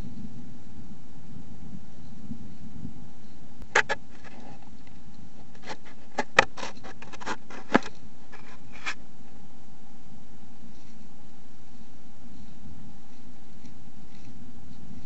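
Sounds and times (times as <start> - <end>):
microphone hiss: 0.0 - 15.0
animal clicks and scratches: 3.7 - 9.0, 13.6 - 15.0.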